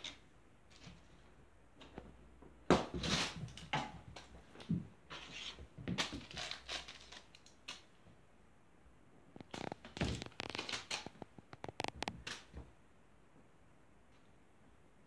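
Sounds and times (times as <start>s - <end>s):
foil wrapper rustling on carpet: 9.5s - 11.2s.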